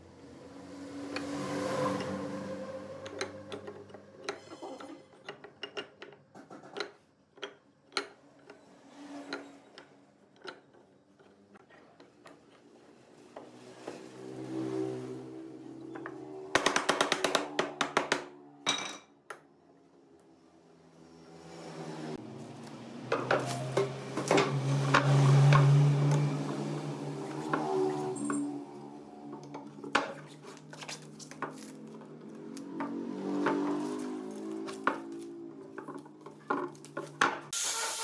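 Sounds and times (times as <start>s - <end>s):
soft background music: 23.3s - 26.8s.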